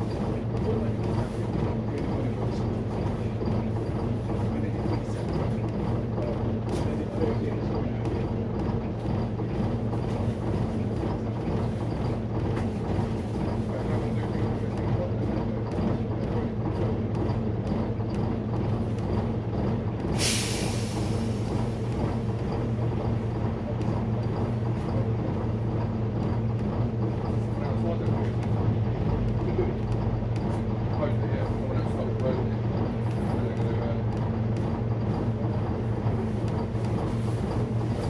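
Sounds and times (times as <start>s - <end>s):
diesel bus engine idling: 15.0s - 30.6s
air hiss from bus air system: 20.2s - 21.8s.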